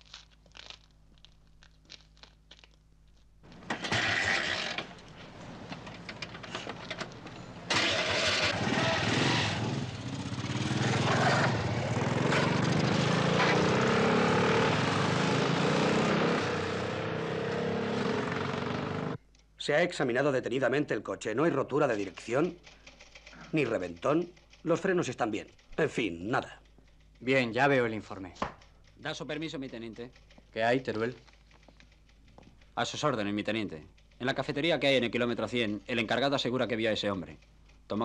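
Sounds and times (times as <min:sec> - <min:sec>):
motorcycle engines revving: 0:03.5 - 0:19.2.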